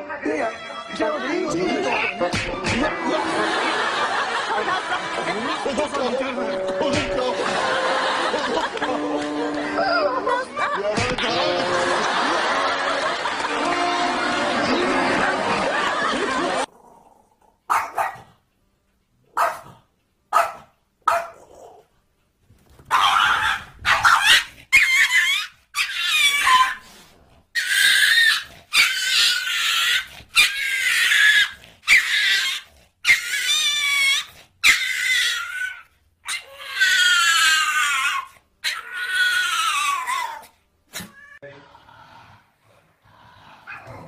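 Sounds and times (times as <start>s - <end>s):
small dogs yapping: 17.7s - 18.2s, 20.3s - 21.8s, 22.9s - 27.0s, 27.6s - 41.4s, 43.7s - 44.0s.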